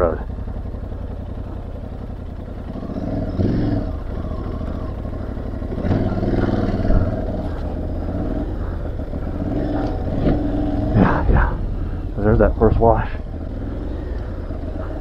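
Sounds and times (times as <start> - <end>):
motorcycle engine revving: 0.0 - 15.0.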